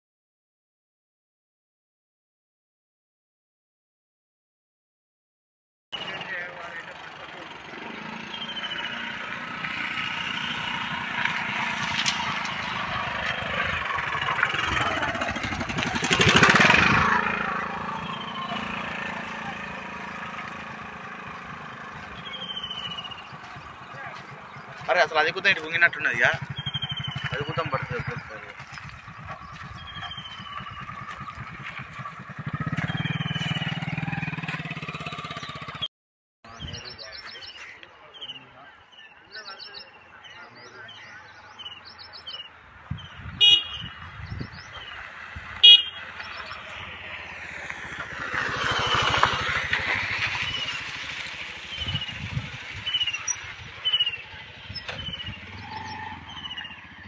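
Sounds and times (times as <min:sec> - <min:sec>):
engine running: 0:06.0 - 0:35.9, 0:44.5 - 0:57.0.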